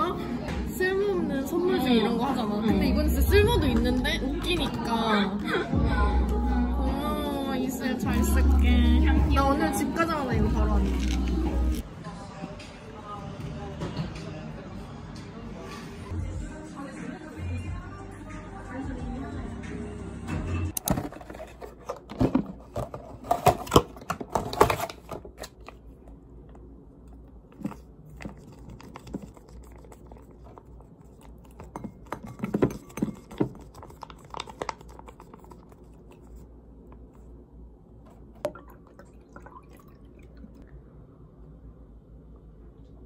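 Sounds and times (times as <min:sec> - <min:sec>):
juice pouring into glass: 0:38.4 - 0:40.8.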